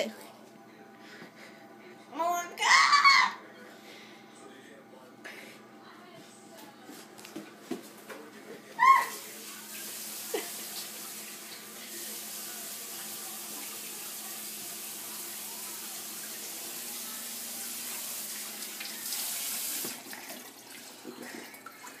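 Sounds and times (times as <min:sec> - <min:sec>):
faucet running into sink: 0:09.0 - 0:22.0.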